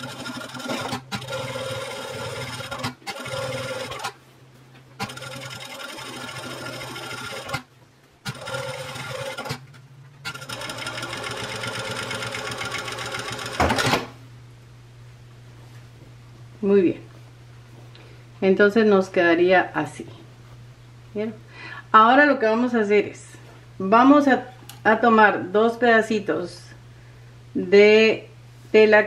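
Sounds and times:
sewing machine stitching: 0:00.0 - 0:04.2, 0:05.0 - 0:14.1.

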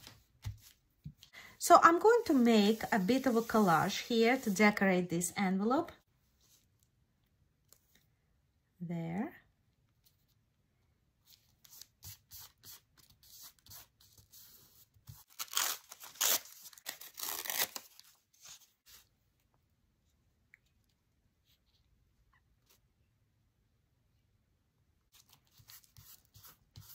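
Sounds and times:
paper page tearing: 0:15.3 - 0:18.2.

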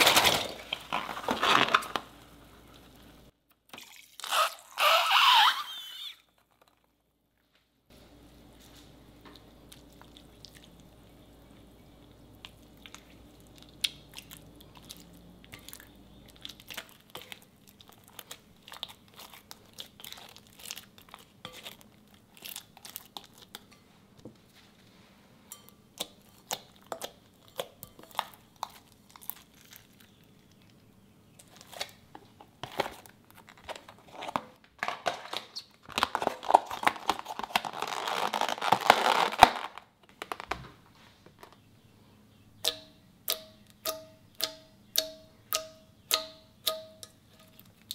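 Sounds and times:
slime crinkling: 0:00.0 - 0:03.3, 0:12.4 - 0:23.7, 0:26.2 - 0:40.9.

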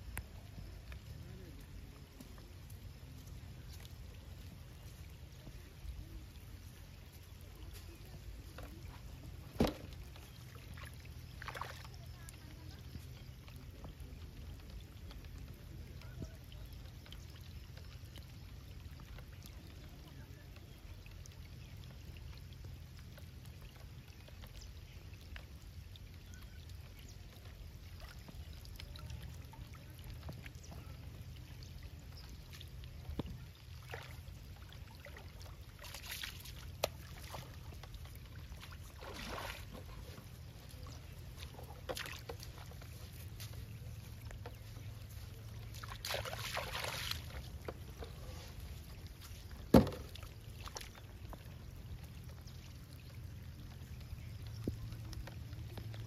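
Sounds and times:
water trickling and splashing: 0:00.0 - 0:56.0
louder splashes: 0:39.0 - 0:39.7, 0:45.8 - 0:47.4.

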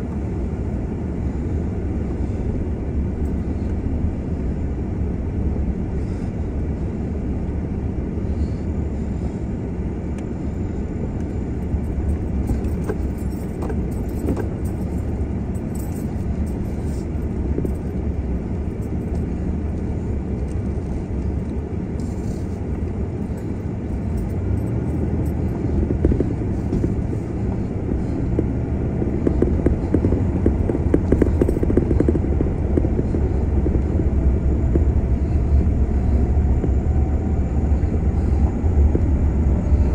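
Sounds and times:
vehicle driving on gravel: 0:10.4 - 0:39.9.

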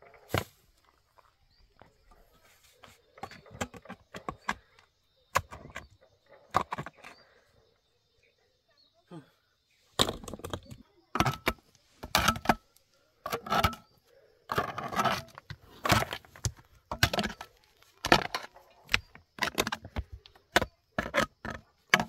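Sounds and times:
tools scraping rock: 0:02.4 - 0:07.2, 0:10.0 - 0:22.0.

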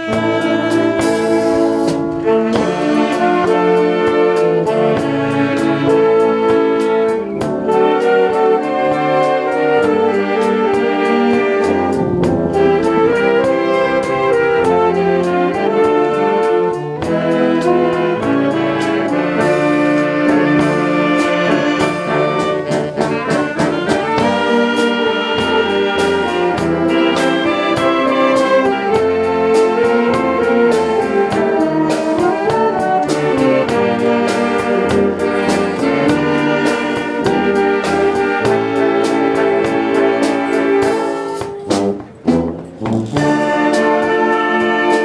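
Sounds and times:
wind band playing: 0:00.0 - 0:45.0
percussion beat: 0:18.1 - 0:45.0.

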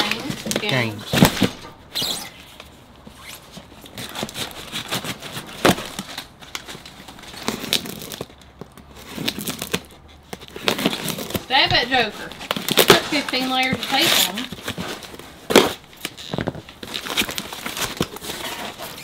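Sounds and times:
cardboard and paper rustles: 0:00.0 - 0:19.0
packing tape tearing: 0:00.0 - 0:19.0.

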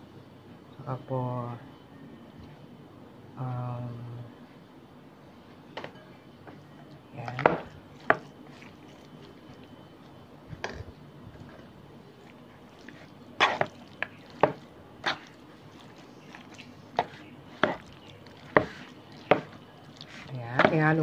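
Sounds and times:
spoon tapping mixing bowl: 0:17.0 - 0:19.6, 0:20.5 - 0:21.0.

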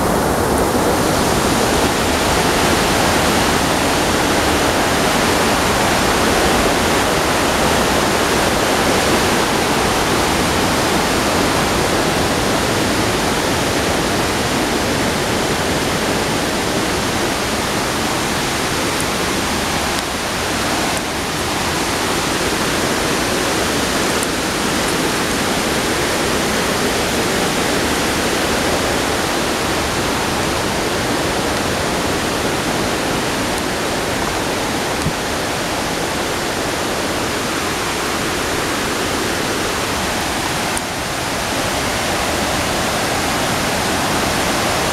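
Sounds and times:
waterfall roaring: 0:00.0 - 0:44.9.

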